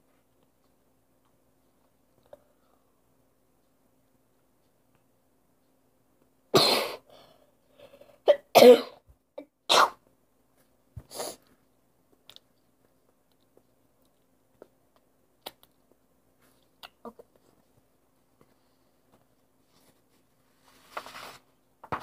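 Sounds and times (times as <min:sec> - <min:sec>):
girl coughing: 0:06.6 - 0:07.1, 0:08.2 - 0:10.0.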